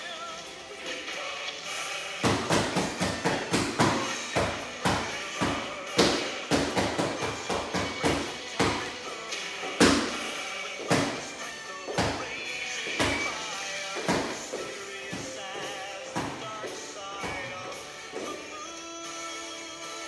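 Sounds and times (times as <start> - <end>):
background music: 0.0 - 20.0.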